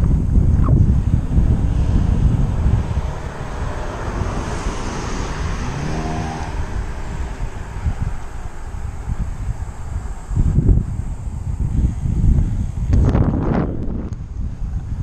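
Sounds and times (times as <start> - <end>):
wind rumbling on microphone: 0.0 - 15.0
car driving past: 1.2 - 9.4.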